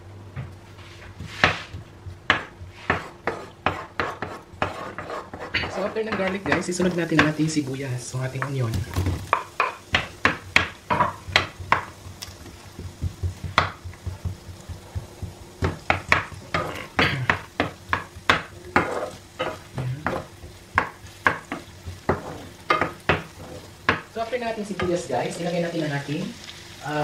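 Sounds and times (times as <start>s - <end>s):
oil sizzling: 0.0s - 27.0s
wooden spoon scraping a pan: 0.7s - 25.8s.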